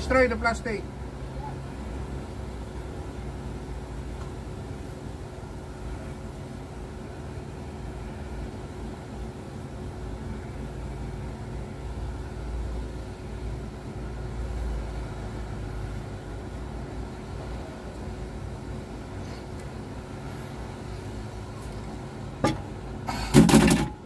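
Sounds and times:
constant hum: 0.0 - 24.0
low mechanical rumble: 0.0 - 24.0.

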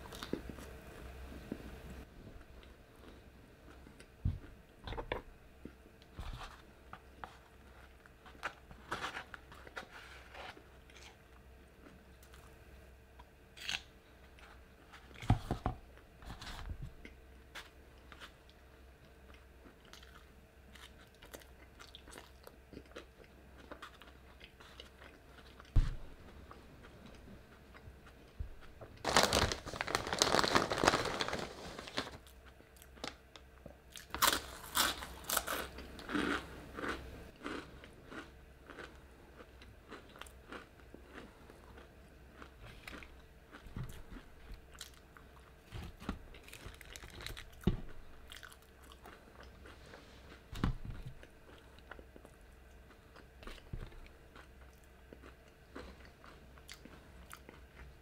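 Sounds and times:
person chewing crunchy food: 13.6 - 15.3, 16.3 - 33.1, 33.9 - 58.0.

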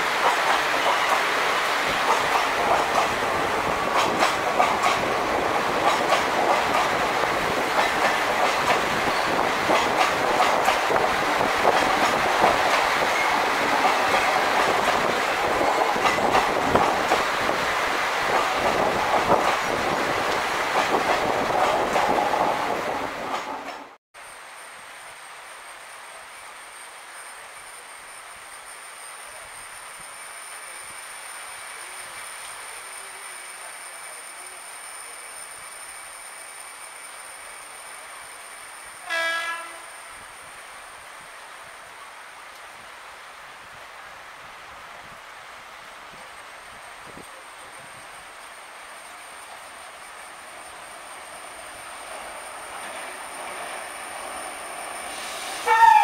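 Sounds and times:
train wheels clattering over rail joints: 1.9 - 17.6.

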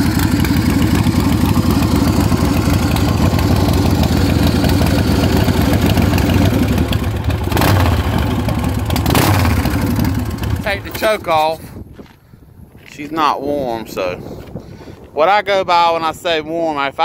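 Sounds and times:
motorcycle engine idling: 0.0 - 11.3.

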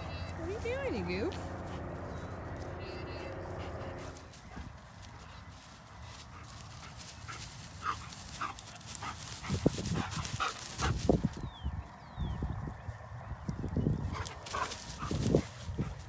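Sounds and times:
puppies play growling: 0.0 - 5.4
paws rustling through dry grass: 0.0 - 16.0.

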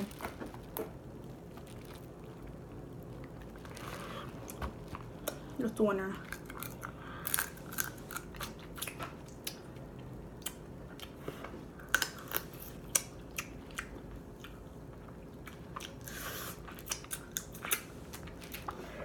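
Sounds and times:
wet chewing: 6.2 - 11.2, 11.8 - 18.9.

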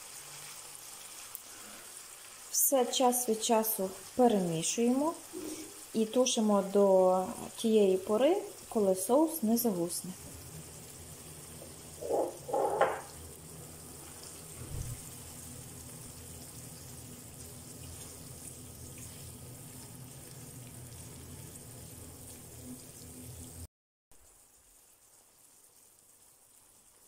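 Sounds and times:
chicken sizzling in a frying pan: 0.0 - 27.0
low thump: 14.6 - 15.0
spatula stirring sauce: 17.4 - 21.7.

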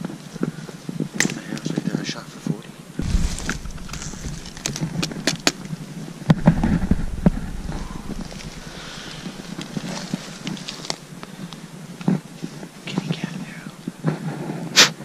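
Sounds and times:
dry twigs cracking and crunching: 3.0 - 12.8
rustling: 3.0 - 14.6.

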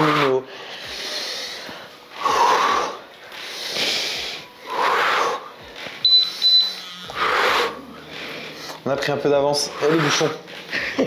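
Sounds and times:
short high beeps: 6.0 - 7.0
forceful exhalations: 7.1 - 8.8.

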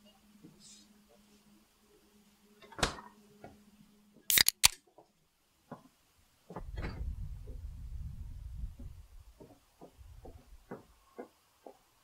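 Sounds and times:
sharp mechanical clicks: 4.3 - 4.8.

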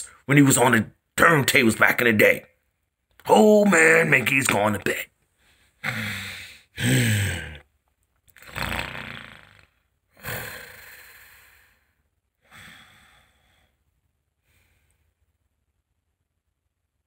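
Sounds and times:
man snoring: 5.8 - 7.6, 8.4 - 11.9.

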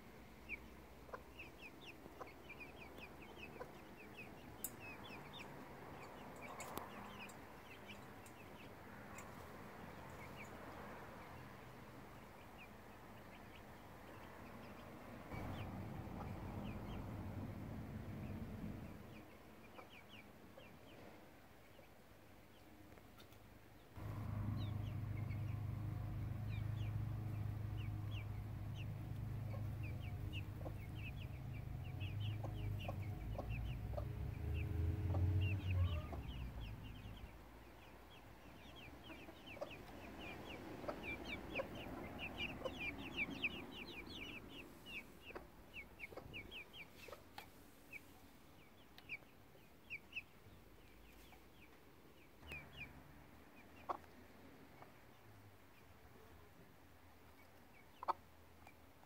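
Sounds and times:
chicks peeping: 0.0 - 59.0
low steady hum: 24.0 - 37.4.

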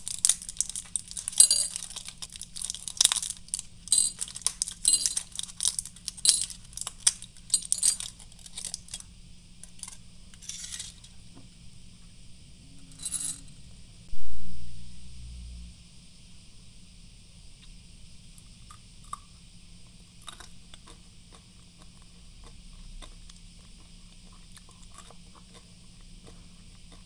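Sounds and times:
candies clicking onto ceramic plate: 0.0 - 9.0
blister pack crinkling: 0.0 - 11.1.

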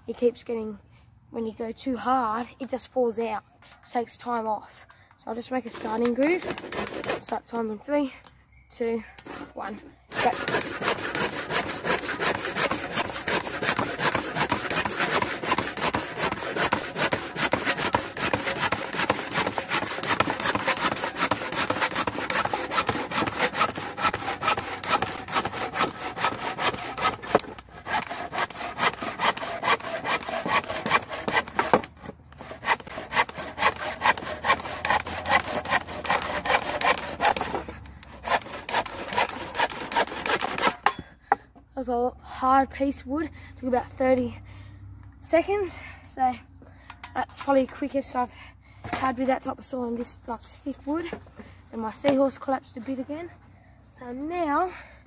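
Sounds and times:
hand saw cutting wood: 5.4 - 7.8, 9.2 - 41.1, 48.8 - 49.6.

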